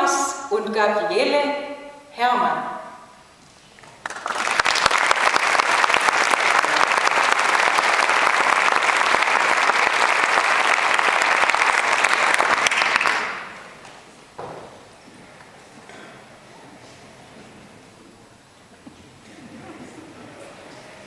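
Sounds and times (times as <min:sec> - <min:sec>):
audience applauding: 0:03.8 - 0:13.8.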